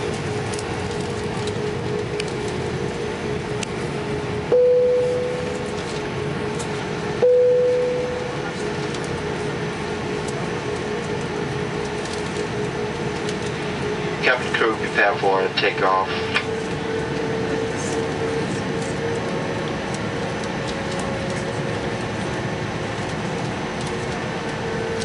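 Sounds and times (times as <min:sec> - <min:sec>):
airliner cabin hum: 0:00.0 - 0:25.0
single-tone cabin chime: 0:04.5 - 0:05.8, 0:07.2 - 0:08.6.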